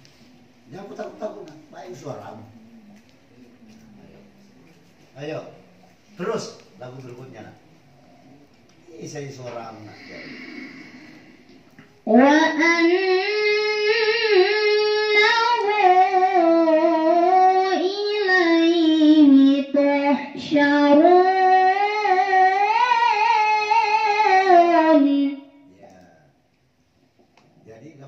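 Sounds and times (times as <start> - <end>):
woman reciting melodically: 12.0 - 25.7.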